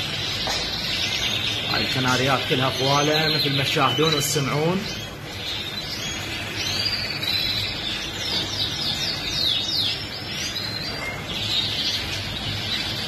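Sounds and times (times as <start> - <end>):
canaries singing: 0.0 - 13.0.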